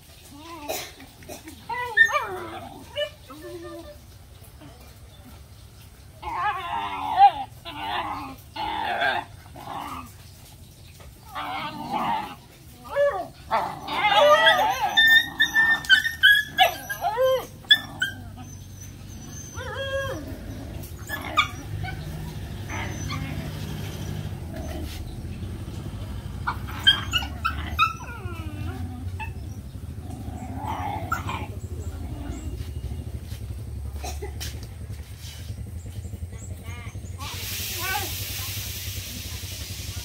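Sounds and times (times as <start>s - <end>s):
young dogs whining and yelping: 1.4s - 4.7s, 6.2s - 10.2s, 11.2s - 25.3s, 26.4s - 32.7s.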